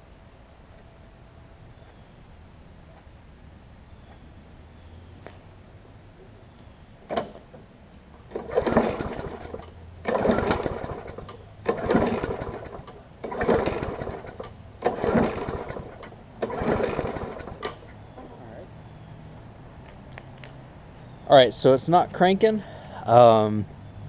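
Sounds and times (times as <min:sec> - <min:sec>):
mower engine turning over: 0:08.2 - 0:18.0
starter rope being pulled: 0:08.3 - 0:17.9.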